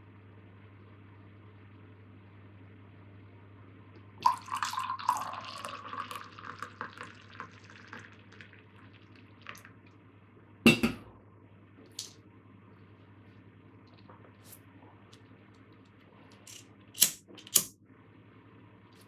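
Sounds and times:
dripping: 4.2s - 9.8s
tea pouring into a mug: 4.2s - 9.8s.

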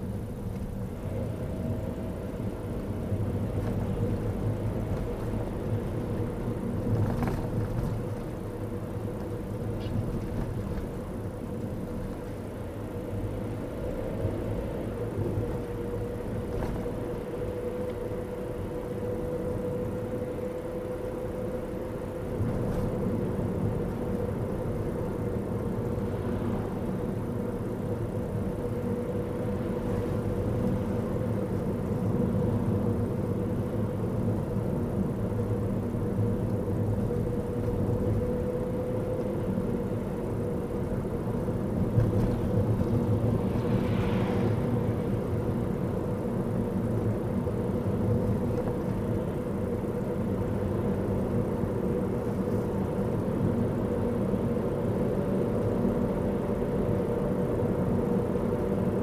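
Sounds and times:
car road and engine noise: 0.0s - 59.0s
truck passing by: 43.0s - 45.7s.

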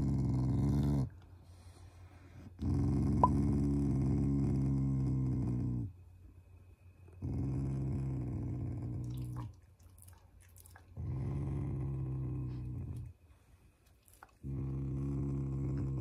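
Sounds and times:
dog growling: 0.0s - 1.2s, 2.6s - 5.9s, 7.2s - 9.5s, 10.9s - 13.1s, 14.2s - 16.0s.

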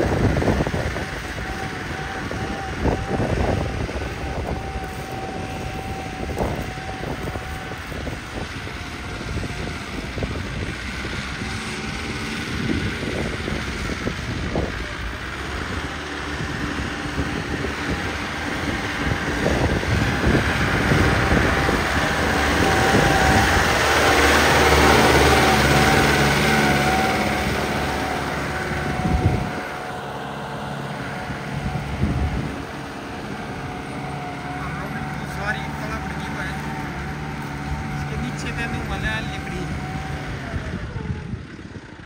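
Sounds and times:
tractor diesel engine running: 0.0s - 42.0s
thin steady whine: 1.1s - 10.7s.

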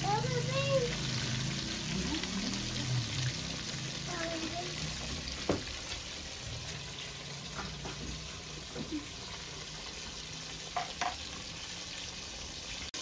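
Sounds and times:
fish deep-frying in oil: 0.0s - 13.0s.

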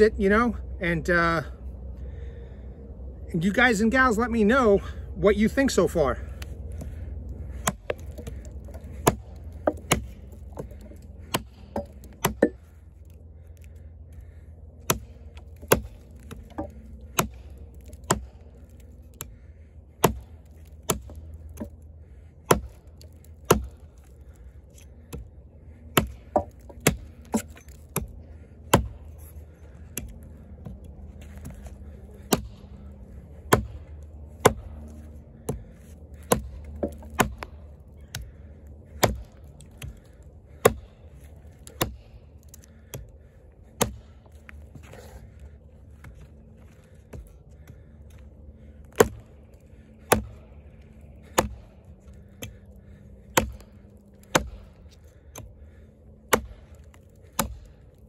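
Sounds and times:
axe chopping log: 6.3s - 21.8s, 22.4s - 29.3s, 29.9s - 45.4s, 48.8s - 49.3s, 50.0s - 50.6s, 51.2s - 57.9s.

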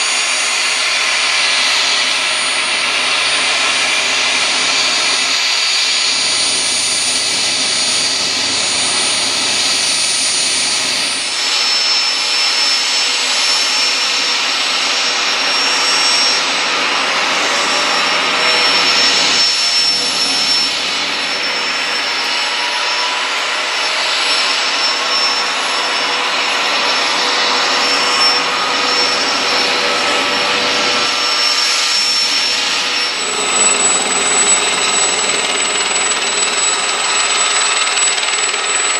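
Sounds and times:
helicopter turbine whine: 0.0s - 38.9s
higher whining tone: 17.2s - 38.9s.

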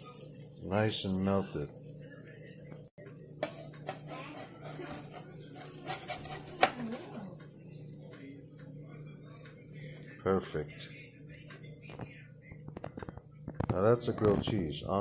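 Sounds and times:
spatula scraping grill plate: 3.7s - 7.4s.

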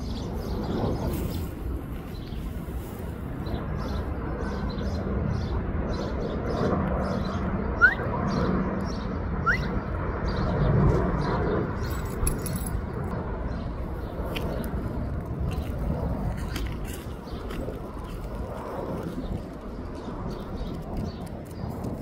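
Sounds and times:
outdoor background noise: 0.0s - 22.0s
rising bird chirps: 6.4s - 10.6s
collar tags jingling: 11.8s - 13.0s
dog walking on sand: 14.2s - 22.0s.

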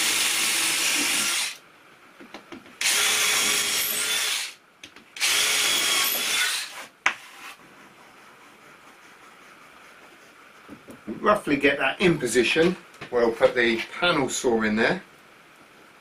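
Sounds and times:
cordless drill motor whining: 2.8s - 4.5s, 5.2s - 6.7s.

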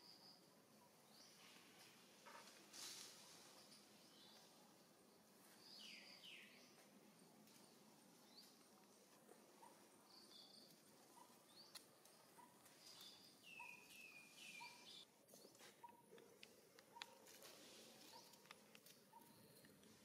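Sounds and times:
faint high-pitched chirping: 9.6s - 16.2s, 16.9s - 20.0s.

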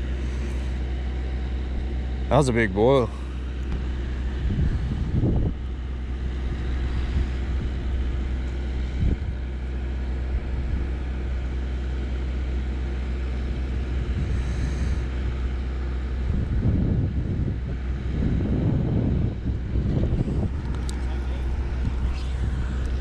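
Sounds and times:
wind buffeting microphone: 3.1s - 11.5s, 13.4s - 23.0s.

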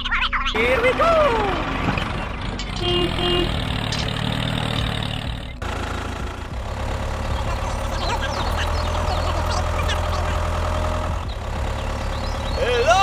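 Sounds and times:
tractor engine running: 0.5s - 13.0s
horn toots: 2.7s - 4.3s.

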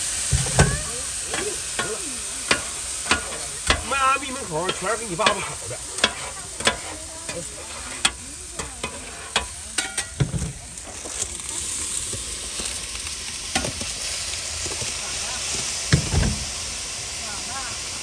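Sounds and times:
food sizzling on a griddle: 0.0s - 18.0s
metal spatulas scraping a griddle: 0.3s - 11.2s.

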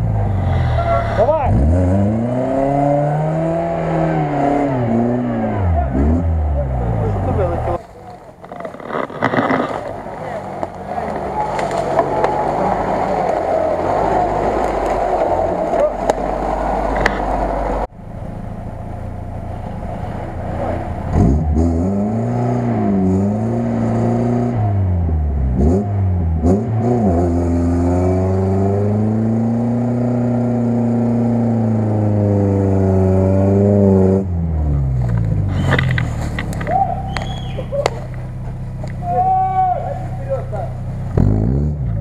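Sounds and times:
car engine revving hard: 0.2s - 7.8s, 20.1s - 36.2s, 41.0s - 42.0s.

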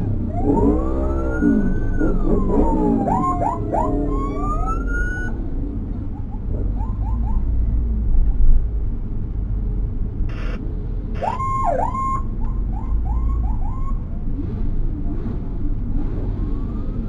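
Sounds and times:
siren tone swooping: 0.0s - 5.5s, 11.2s - 14.2s
emergency vehicle siren chirps: 0.0s - 7.9s, 11.2s - 14.3s, 16.1s - 17.0s
vehicle engine rumble: 0.0s - 17.0s.

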